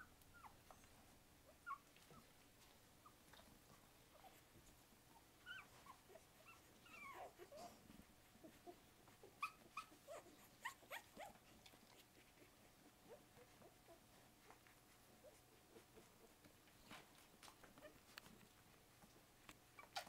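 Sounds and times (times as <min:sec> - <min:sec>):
puppies squeaking and whimpering: 0:01.5 - 0:02.3, 0:05.4 - 0:07.8, 0:08.4 - 0:12.5, 0:19.7 - 0:20.0.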